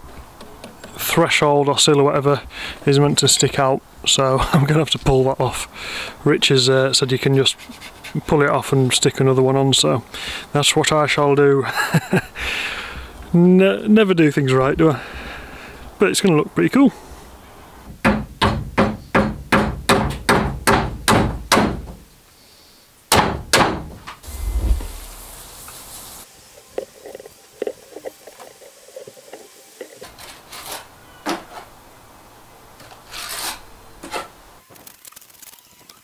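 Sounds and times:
hammer knocking on wooden frame: 18.0 - 22.0.

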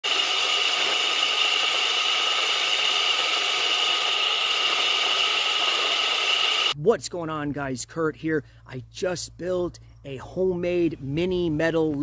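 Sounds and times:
high whine: 0.0 - 6.8
metal lathe running: 0.0 - 6.8.

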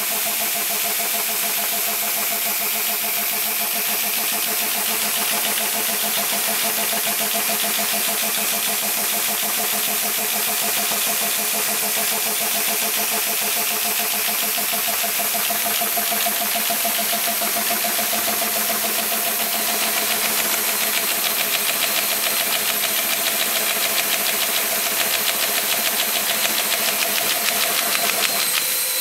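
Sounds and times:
rapid ticking of sheets feeding: 19.5 - 28.6.

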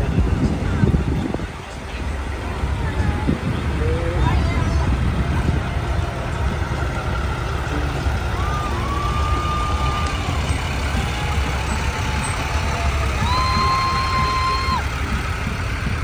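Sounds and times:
truck diesel engine rumbling: 0.0 - 16.0
whistle-like tones: 8.3 - 15.0.

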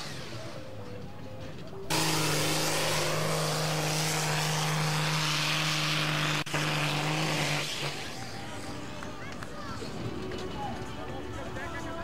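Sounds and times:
tractor diesel engine at full throttle: 1.9 - 9.7.

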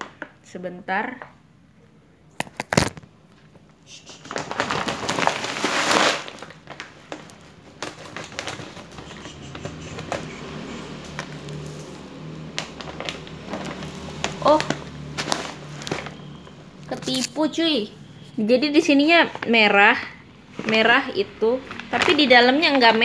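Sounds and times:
plastic bag rustling: 2.5 - 3.5, 4.1 - 23.0
scissors cutting plastic bag: 4.2 - 17.5, 21.6 - 23.0.

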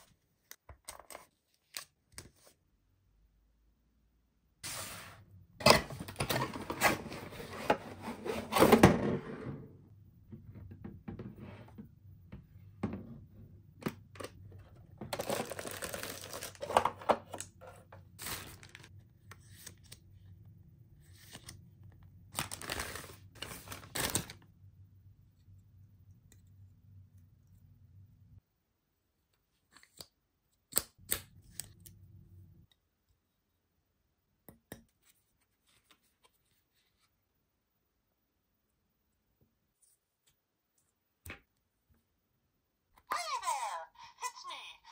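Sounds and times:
plastic bags crinkling: 15.2 - 16.8, 22.4 - 24.4.

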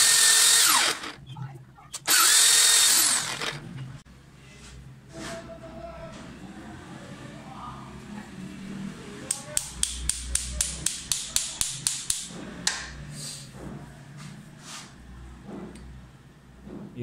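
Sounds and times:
hammer knocking on metal: 16.6 - 17.0.

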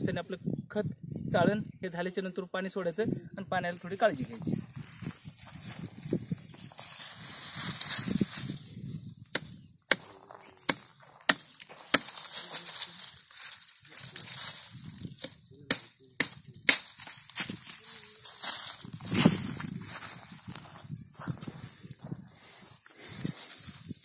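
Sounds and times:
dry leaves and twigs rustling: 3.8 - 24.0
pruning shears snipping: 10.6 - 14.3.

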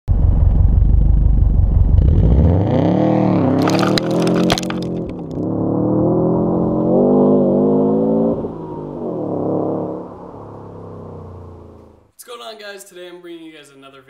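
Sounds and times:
car engine revving: 1.2 - 12.0
gravel clattering on microphone: 3.6 - 5.4.

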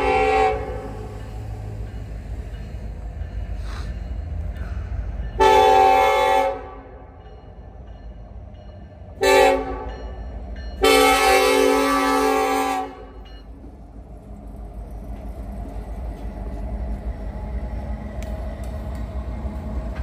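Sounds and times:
locomotive air horn blasts: 0.0 - 1.0, 5.4 - 7.0, 9.2 - 9.9, 10.8 - 13.2.

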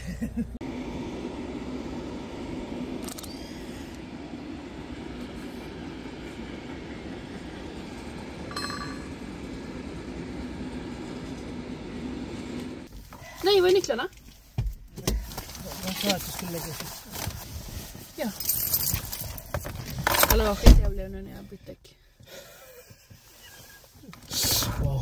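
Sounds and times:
freight train rumbling past: 4.0 - 12.9.

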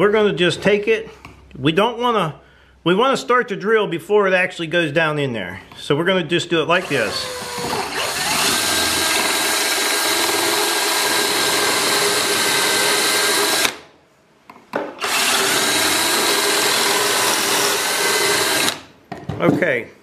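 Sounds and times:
power drill boring into wood: 6.8 - 13.8, 15.0 - 18.9.

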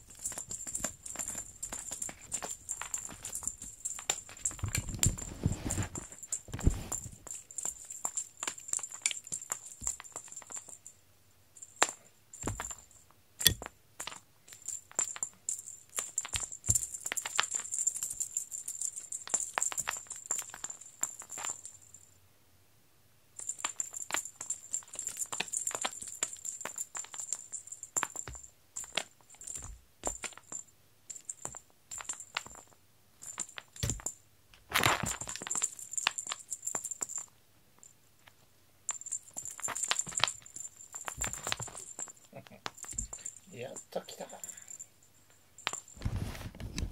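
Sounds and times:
feather toy rustling on foam mats: 0.2 - 7.4, 45.8 - 46.9
louder scuffle: 4.8 - 7.2, 46.0 - 46.9.

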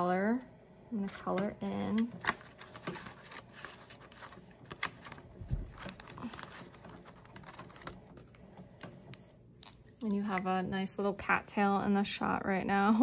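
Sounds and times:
paper bills and plastic sleeves rustling: 1.0 - 10.2.

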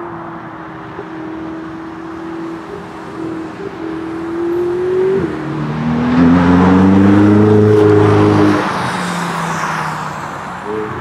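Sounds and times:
car engine accelerating past: 2.8 - 11.0.

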